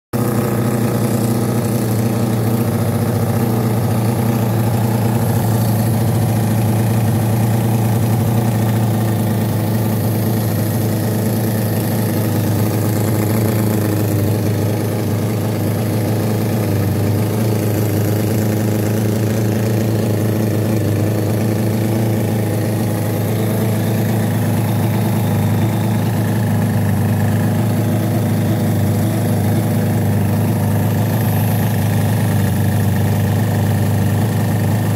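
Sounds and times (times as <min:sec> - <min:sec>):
model engine running: 0:00.2 - 0:34.9.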